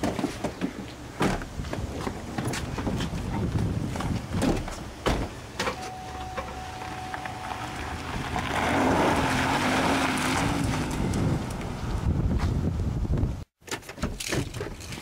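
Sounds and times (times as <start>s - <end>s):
wheels spinning on gravel: 7.1s - 12.1s
car engine revving hard: 7.5s - 11.0s.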